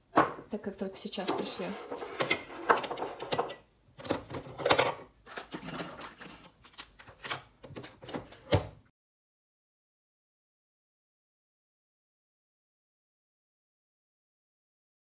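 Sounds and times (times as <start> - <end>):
cups and utensils clinking: 1.2 - 3.7.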